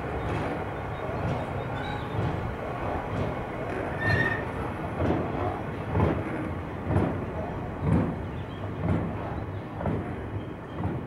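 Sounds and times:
freight train rumbling past: 0.0 - 11.0
high wheel squeal: 3.9 - 4.5.

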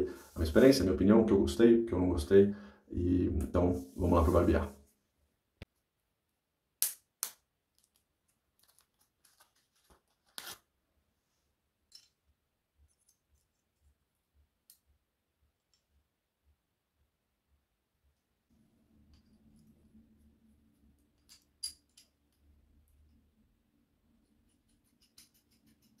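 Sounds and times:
paper wrapper crinkling: 8.5 - 10.7.

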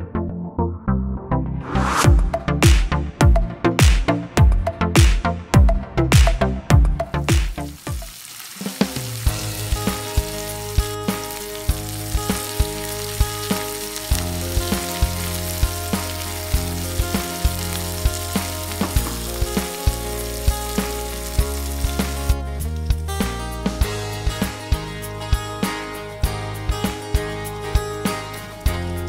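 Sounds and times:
background music with steady beat: 0.0 - 29.0
vegetables sizzling in a frying pan: 7.5 - 22.4.

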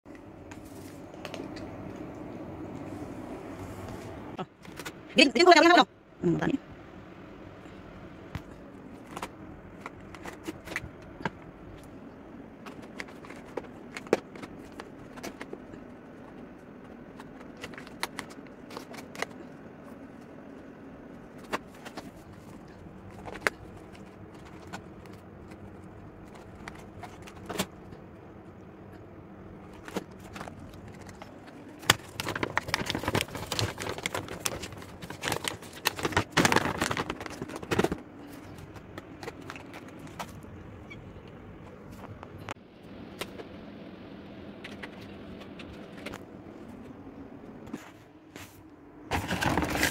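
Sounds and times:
plastic bag crinkling: 29.7 - 40.2, 49.1 - 49.9.

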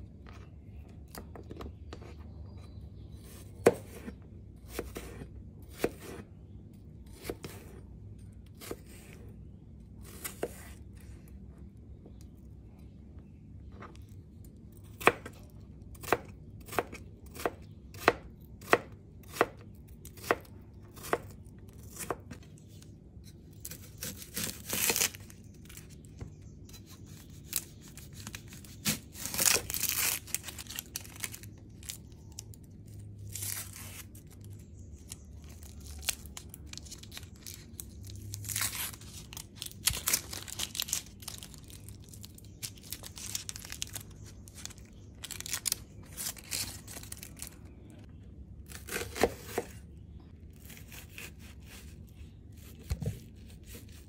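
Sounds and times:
knife crunching through onion: 23.2 - 26.0, 26.6 - 32.0, 48.7 - 49.8
onion skin crackling: 23.6 - 47.8.

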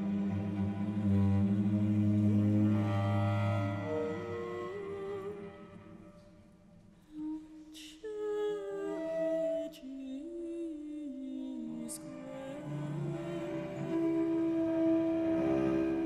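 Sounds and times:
sustained cello notes: 0.0 - 6.5, 11.6 - 16.0.

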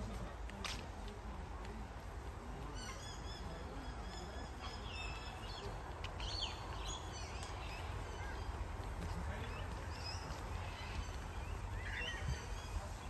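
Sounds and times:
birds calling: 2.5 - 13.0.

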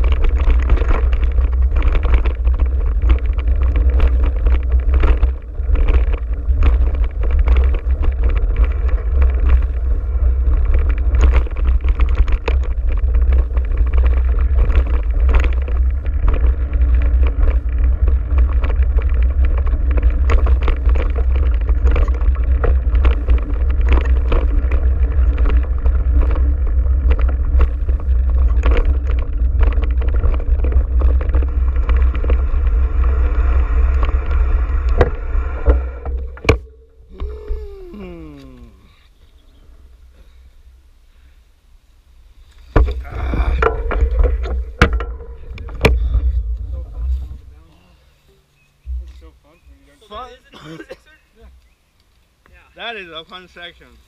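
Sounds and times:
bike knocks and rattles: 0.0 - 37.5, 42.6 - 47.7
wind rumble on microphone: 0.0 - 40.9, 42.1 - 49.9.

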